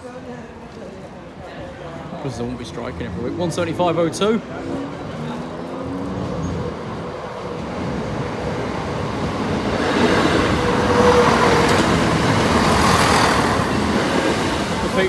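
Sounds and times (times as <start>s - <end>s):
train diesel engines: 1.3s - 15.0s
train wheels on rails: 5.0s - 15.0s.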